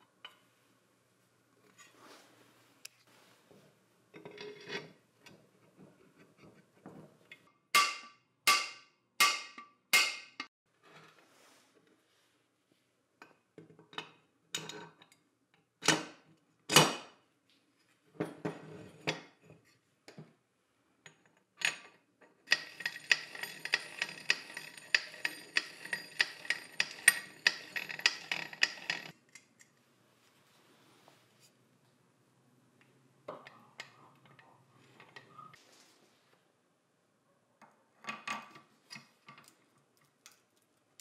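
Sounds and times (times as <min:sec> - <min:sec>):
metal parts clinking: 0:22.5 - 0:29.2.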